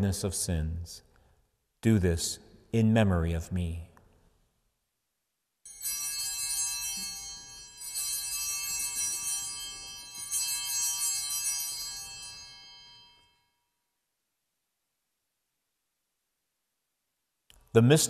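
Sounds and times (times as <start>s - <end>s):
bell ringing: 5.7s - 13.8s.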